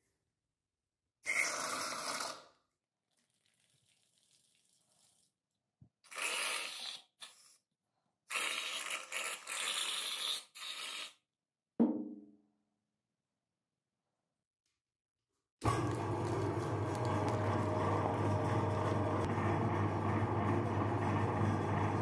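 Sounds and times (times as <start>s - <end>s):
knock with brief ringing: 11.8s - 12.2s
meat grinder noisy bursts: 15.6s - 22.0s.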